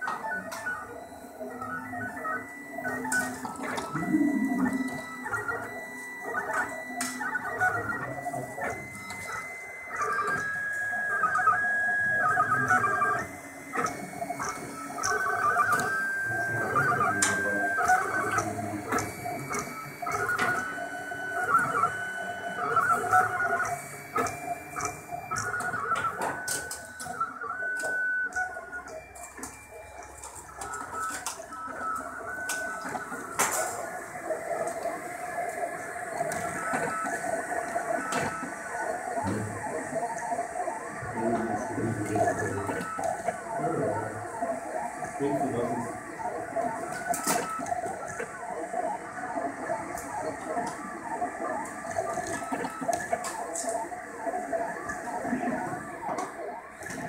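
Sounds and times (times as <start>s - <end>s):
stepper motors whining: 0.4s - 29.8s, 30.4s - 57.0s
steady hum: 2.9s - 9.4s.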